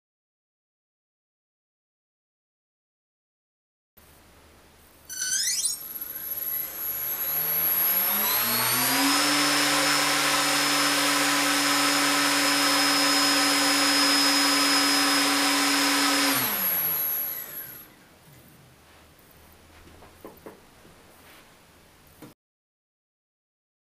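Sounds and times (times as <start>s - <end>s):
electric motor spinning propeller: 5.2s - 18.0s.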